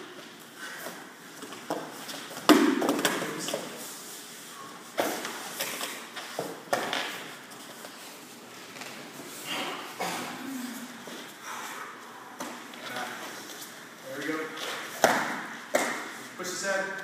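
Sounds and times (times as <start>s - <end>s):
bodies thumping on foam mats: 1.4s - 3.7s, 14.6s - 16.1s.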